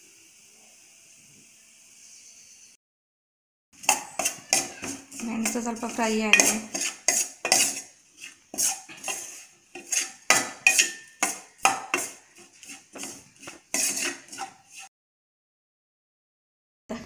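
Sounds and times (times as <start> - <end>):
metal spoon scraping steel pan: 3.8 - 14.9.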